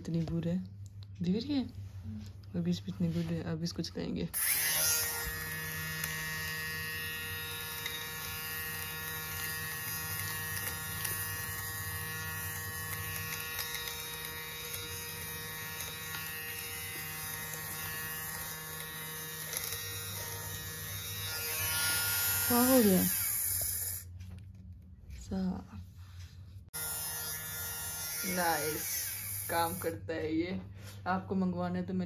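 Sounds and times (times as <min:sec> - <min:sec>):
lint remover buzzing hum: 0:04.4 - 0:24.1.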